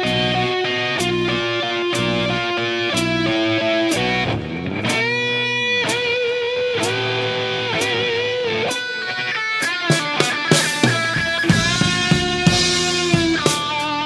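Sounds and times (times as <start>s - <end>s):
bass guitar: 0.0s - 14.0s
electric guitar playing blues: 0.0s - 14.0s
drum hits: 9.7s - 14.0s.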